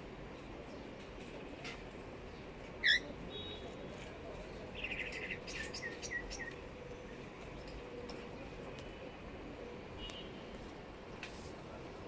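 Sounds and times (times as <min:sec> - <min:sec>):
cockatiel call: 0:02.8 - 0:03.0.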